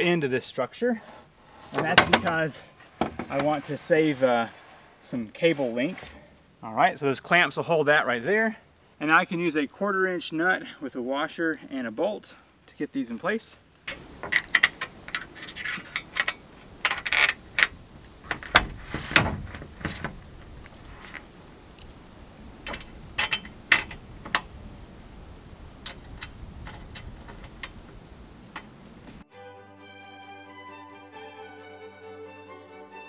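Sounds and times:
metal hardware clinking: 0:01.8 - 0:03.4, 0:13.9 - 0:19.3, 0:22.6 - 0:24.4.

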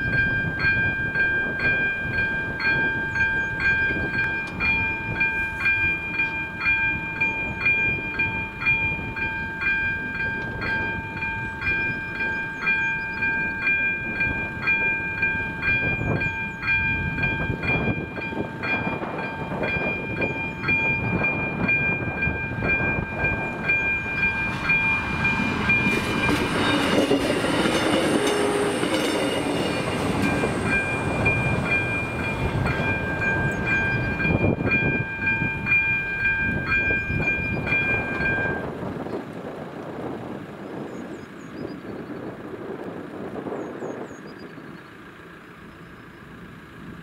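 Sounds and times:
crossing warning bell ringing: 0:00.0 - 0:39.2
train rumbling and clattering: 0:00.0 - 0:47.0.

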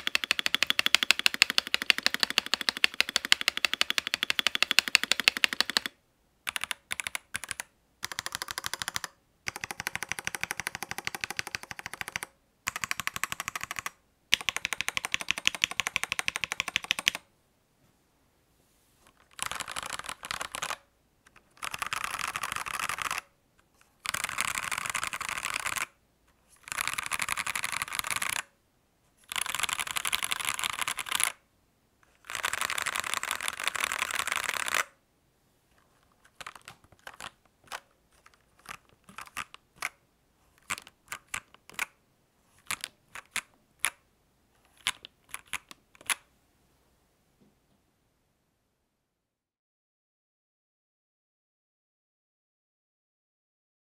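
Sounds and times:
mechanical keyboard typing: 0:00.0 - 0:17.3, 0:19.2 - 0:23.3, 0:24.0 - 0:25.9, 0:26.6 - 0:28.5, 0:29.3 - 0:31.4, 0:32.2 - 0:34.9, 0:36.2 - 0:40.0, 0:40.6 - 0:42.0, 0:42.6 - 0:44.0, 0:44.7 - 0:46.2.

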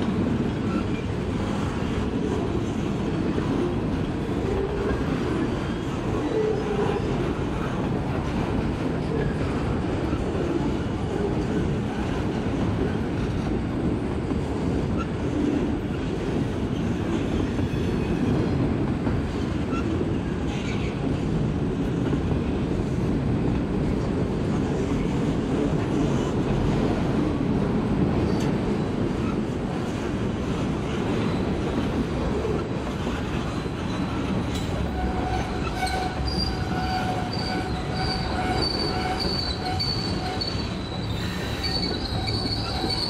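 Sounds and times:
train wheels rumbling on rail: 0:00.0 - 0:43.0.

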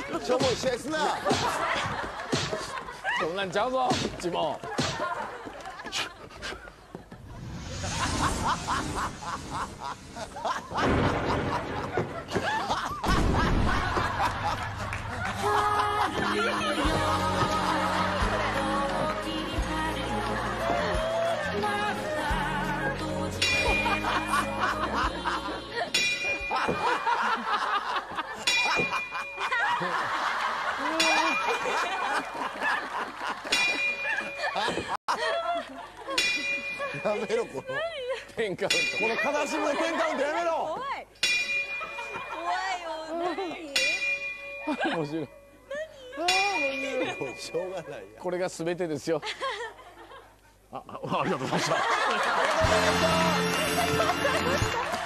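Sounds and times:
group laughing: 0:00.0 - 0:03.5, 0:04.6 - 0:38.4, 0:39.0 - 0:41.0, 0:41.7 - 0:43.8, 0:49.2 - 0:55.0
bell tolling: 0:23.3 - 0:24.7, 0:25.9 - 0:27.2, 0:28.4 - 0:29.5, 0:36.2 - 0:37.7, 0:41.2 - 0:42.5, 0:43.8 - 0:45.6, 0:46.2 - 0:47.9.

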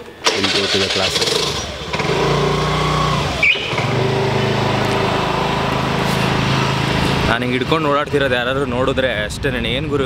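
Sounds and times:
small motorbike engine running: 0:00.4 - 0:07.2
short high chirp: 0:03.4 - 0:03.8.

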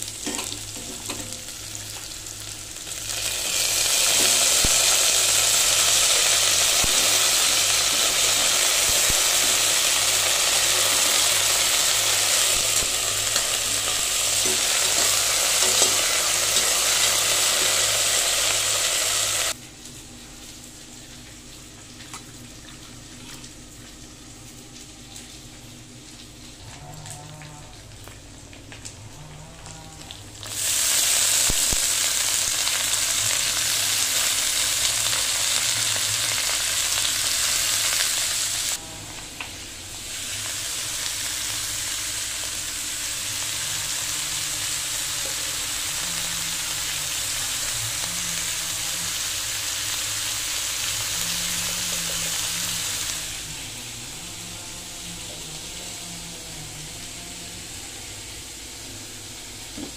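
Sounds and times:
vegetables sizzling in oil: 0:00.0 - 0:19.6, 0:30.1 - 0:56.0, 0:56.9 - 0:59.9.

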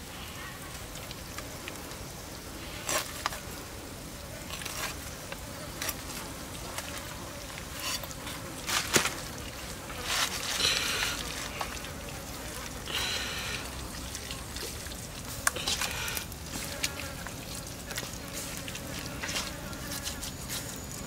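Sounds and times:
insects buzzing: 0:00.0 - 0:21.0
wet squelching of meat by hand: 0:04.5 - 0:20.9.

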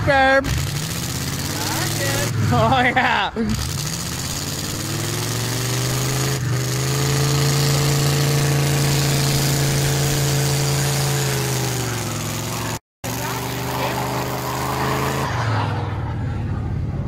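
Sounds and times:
pickup truck engine running: 0:00.1 - 0:17.0.

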